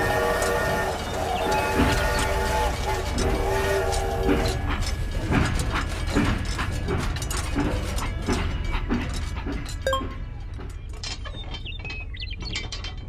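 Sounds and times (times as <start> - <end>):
toy train motor hum: 0.0 - 9.3
toy train track clicks: 0.0 - 9.8.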